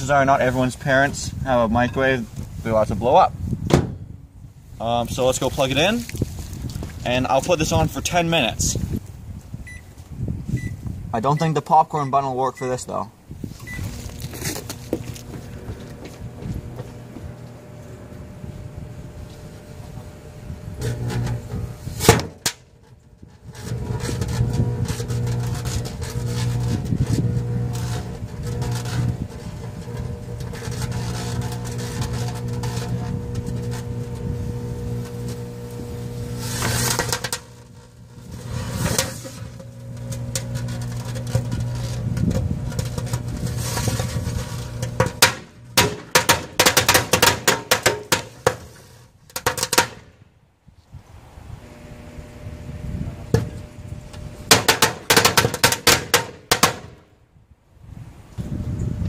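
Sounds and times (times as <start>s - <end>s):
fireworks crackling and popping: 13.4s - 22.6s, 23.4s - 50.1s, 54.4s - 57.0s
microwave oven humming: 13.7s - 22.0s, 23.6s - 38.6s, 39.2s - 45.8s, 51.5s - 55.1s
fireworks hissing: 34.3s - 37.1s.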